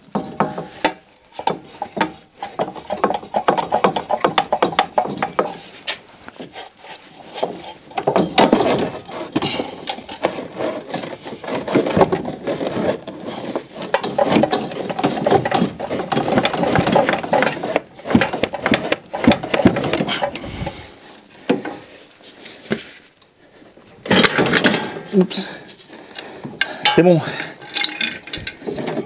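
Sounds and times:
metal tools clicking and scraping: 26.6 - 29.0.

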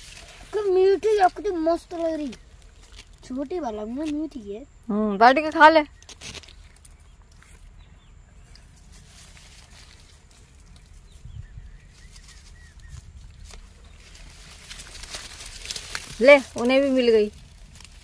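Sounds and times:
rustling of grass and leaves: 0.0 - 18.0
faint bird chirps: 4.4 - 14.5.

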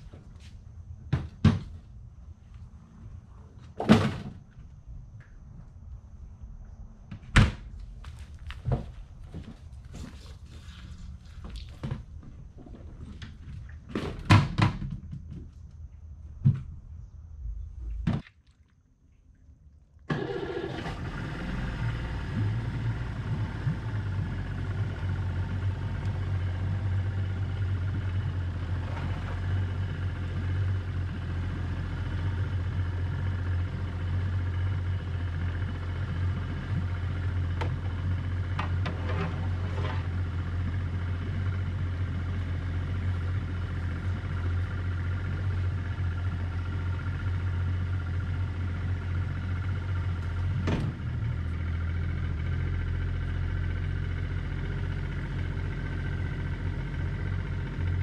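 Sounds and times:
outboard motor idling: 20.1 - 58.0.

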